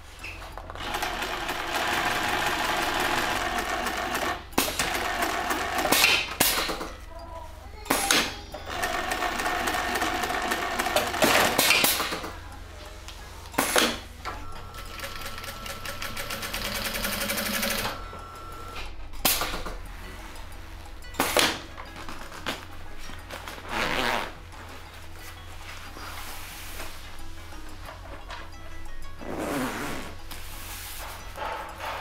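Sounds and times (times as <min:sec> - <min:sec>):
sewing machine stitching: 0:00.7 - 0:06.8, 0:08.6 - 0:12.3, 0:14.7 - 0:18.0.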